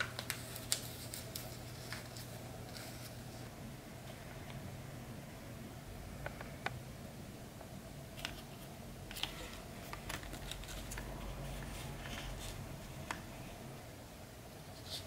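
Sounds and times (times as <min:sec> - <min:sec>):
paper taps and crinkles: 0:00.0 - 0:03.1
low steady hum: 0:00.0 - 0:15.0.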